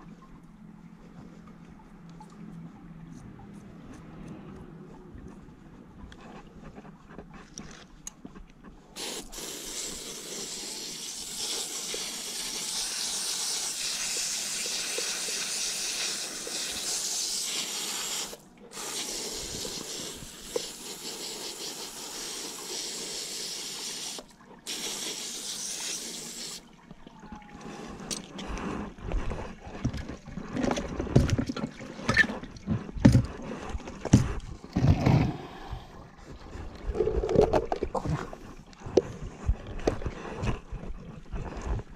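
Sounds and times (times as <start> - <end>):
hose nozzle spraying water: 9.0 - 26.6
irregular knocks and thumps: 29.8 - 33.4, 34.0 - 35.4.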